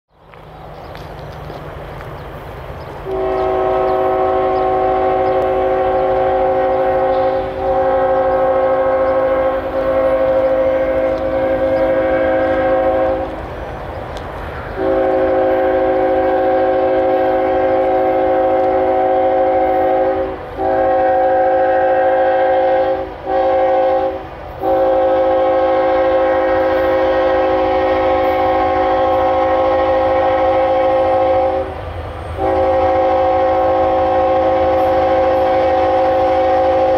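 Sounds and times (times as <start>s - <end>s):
locomotive air horn blasts: 3.0s - 13.4s, 14.8s - 36.9s.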